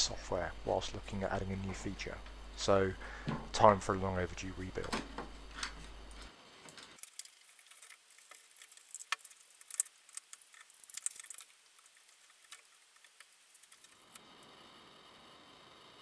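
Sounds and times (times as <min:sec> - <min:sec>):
plastic connectors clicking and rattling: 0:04.8 - 0:14.0.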